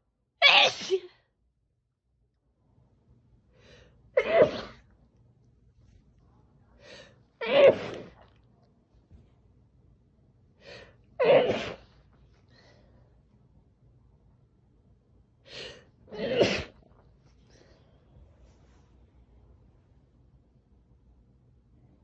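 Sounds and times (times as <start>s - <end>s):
sneezes muffled by a towel: 0.4s - 1.1s, 4.2s - 4.8s, 7.4s - 8.3s, 11.2s - 11.9s, 16.1s - 16.8s.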